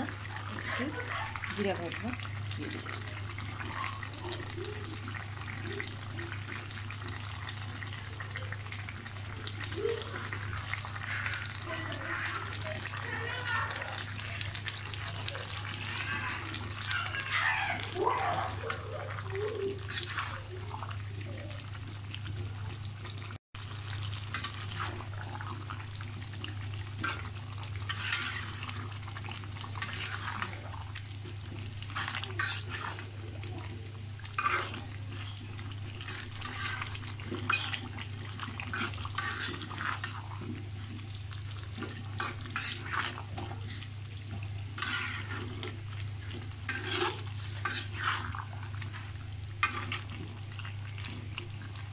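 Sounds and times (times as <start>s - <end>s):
spatula scraping a pan: 19.5s - 20.8s, 24.2s - 25.5s, 27.0s - 28.9s, 29.6s - 30.7s, 31.8s - 33.2s, 34.2s - 41.0s, 41.6s - 50.4s.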